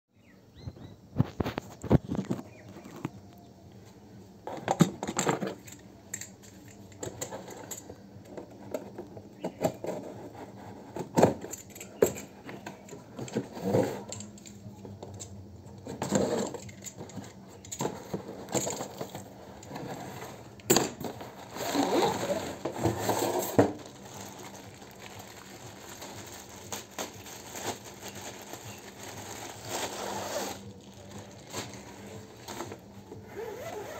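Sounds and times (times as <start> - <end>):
plastic bag crinkling: 21.4 - 32.9.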